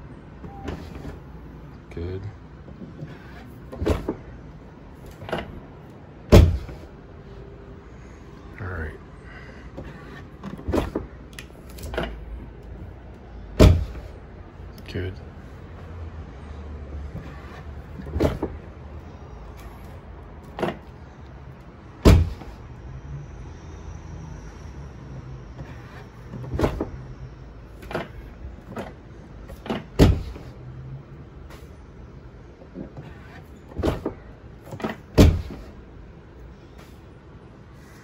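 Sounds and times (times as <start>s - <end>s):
car door clunks: 2.8s - 4.3s, 6.3s - 6.9s, 13.6s - 14.1s, 17.9s - 18.6s, 22.0s - 22.6s, 27.8s - 30.5s, 32.8s - 35.7s.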